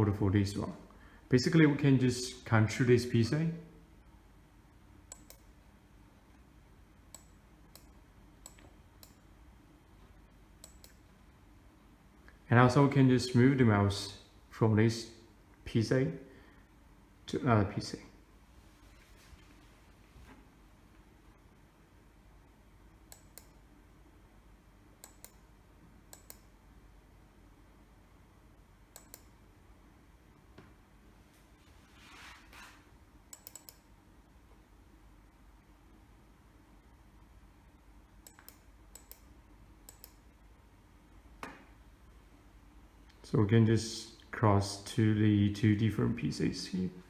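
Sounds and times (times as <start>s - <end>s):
computer mouse clicks: 5.1s - 5.6s, 7.1s - 9.2s, 10.6s - 11.1s, 23.1s - 23.6s, 25.0s - 25.5s, 26.1s - 26.5s, 28.9s - 29.4s, 33.3s - 33.9s, 38.2s - 40.3s.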